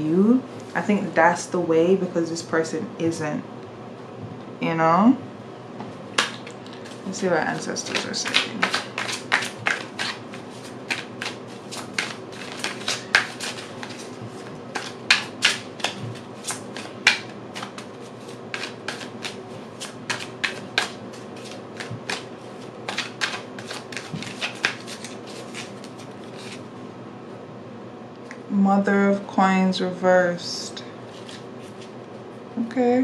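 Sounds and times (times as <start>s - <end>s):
cards being shuffled: 6.2s - 26.6s, 31.1s - 32.0s.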